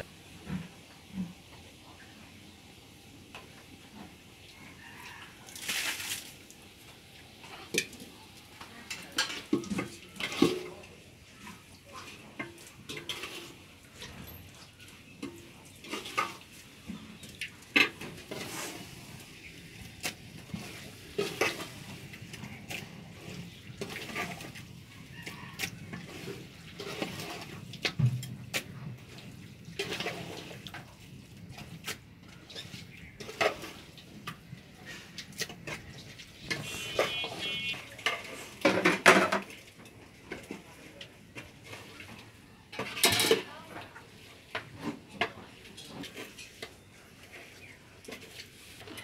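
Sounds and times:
utensils scraping metal pot: 0:08.8 - 0:40.8.

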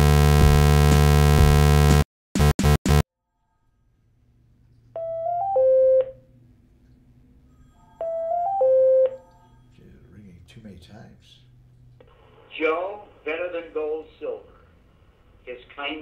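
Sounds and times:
electronic telephone ringing: 0:05.0 - 0:06.2, 0:07.7 - 0:09.6.

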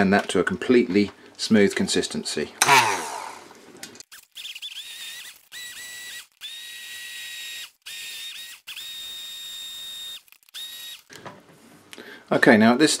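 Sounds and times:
hand blender motor whine: 0:02.6 - 0:11.1.

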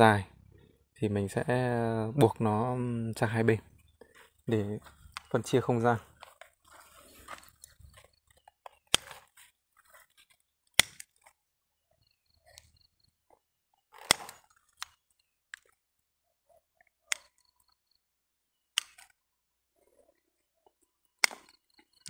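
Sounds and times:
pruning shears snipping: 0:08.7 - 0:09.4, 0:10.8 - 0:11.2, 0:14.0 - 0:15.0.

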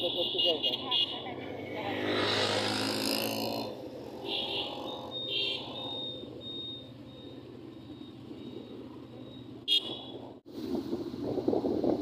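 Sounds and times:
vehicle engine and road noise: 0:00.0 - 0:12.0
faint high beeps: 0:04.3 - 0:10.2
wind noise: 0:10.5 - 0:12.0.

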